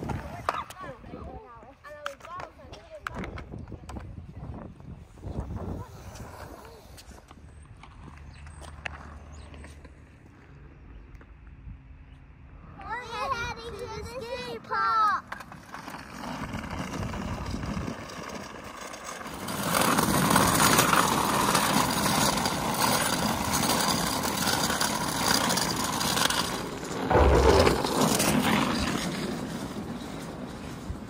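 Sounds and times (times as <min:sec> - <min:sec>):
hard wheels rolling on concrete: 0:00.0 - 0:11.5, 0:12.8 - 0:31.0.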